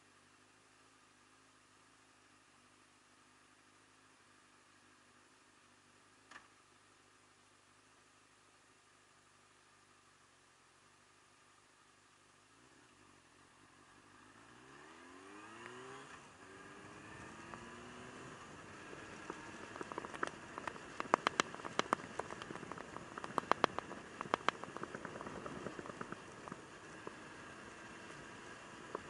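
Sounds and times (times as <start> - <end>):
motorcycle engine accelerating: 14.1 - 29.0
raindrops ticking on camera: 19.6 - 26.6.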